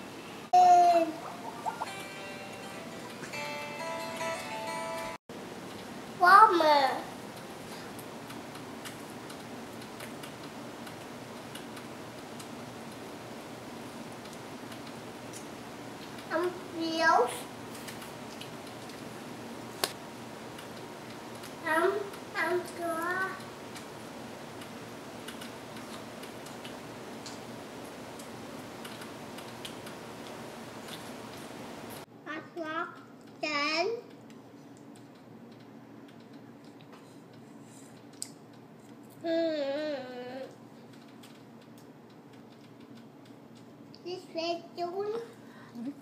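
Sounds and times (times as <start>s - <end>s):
steady low hiss: 0.0s - 36.6s.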